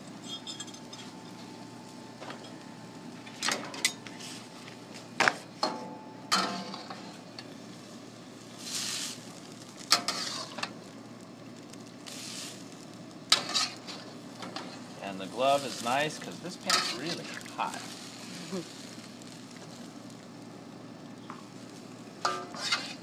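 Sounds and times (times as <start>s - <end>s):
food sizzling in pan: 6.3s - 23.0s
metal spatula scraping a wok: 9.9s - 10.6s, 13.3s - 14.8s, 16.6s - 17.3s, 22.2s - 23.0s.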